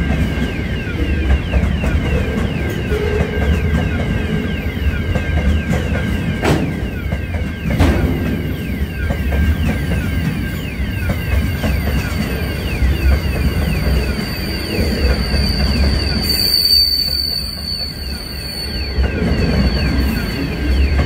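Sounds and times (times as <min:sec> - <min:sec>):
train wheels rumbling on rails: 0:00.0 - 0:21.0
short falling squeals: 0:14.2 - 0:20.5.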